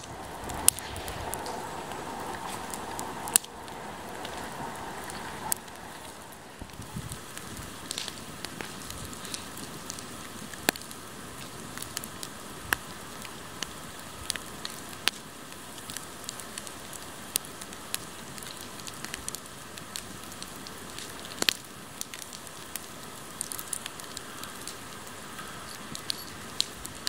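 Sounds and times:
bonfire flames hissing: 0.0 - 27.0
fire crackling and popping: 0.0 - 27.0.

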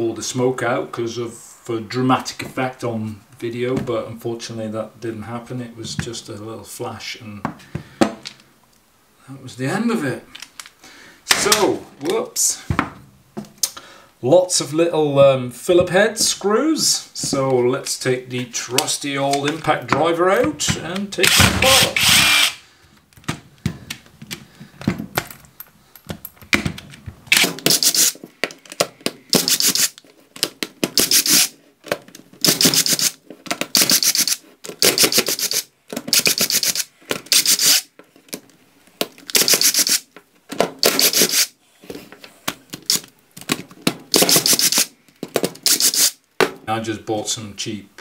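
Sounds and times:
impact driver bursts: 21.2 - 22.6, 27.3 - 28.2, 29.3 - 30.0, 30.9 - 31.5, 32.4 - 37.9, 39.3 - 40.1, 40.8 - 41.6, 44.1 - 44.9, 45.6 - 46.2.

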